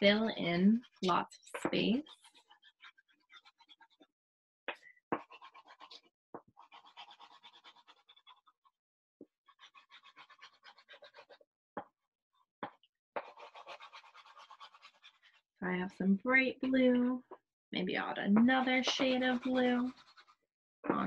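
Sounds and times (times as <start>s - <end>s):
chalk scraping on paper: 1.8s - 4.1s, 5.2s - 8.5s, 9.5s - 11.4s, 13.2s - 15.4s, 18.6s - 20.4s.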